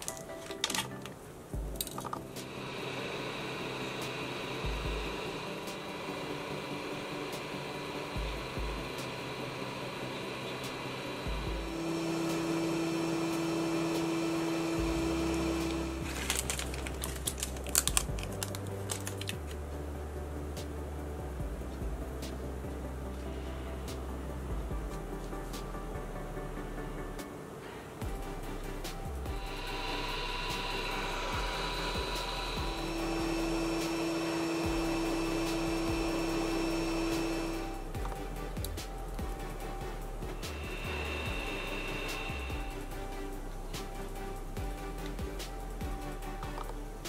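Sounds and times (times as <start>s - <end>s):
plastic packaging crackling: 0.0s - 2.3s, 16.0s - 19.6s
machine hum: 0.0s - 47.0s
hot air gun blowing: 1.8s - 19.5s, 27.5s - 47.0s.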